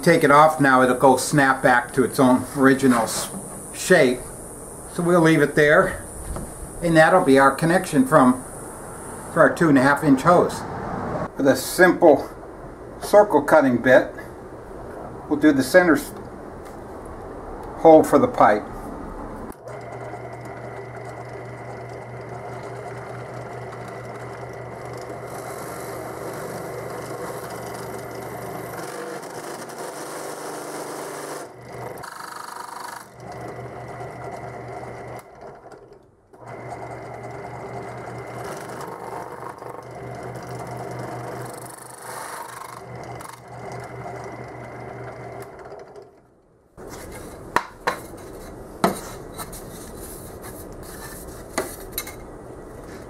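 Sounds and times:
drill press motor hum: 19.5 - 46.1
board knocking: 47.6 - 49.2.

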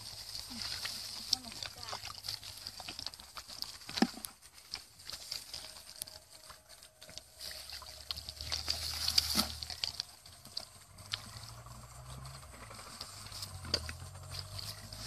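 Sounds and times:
muddy water splashing and sloshing: 0.0 - 15.0.

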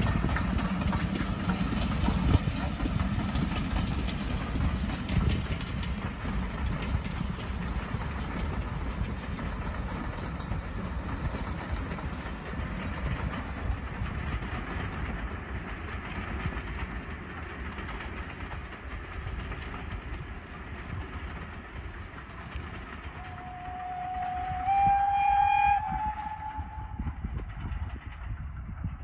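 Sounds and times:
steam train rumbling: 0.0 - 29.0
steam whistle: 23.2 - 27.2.

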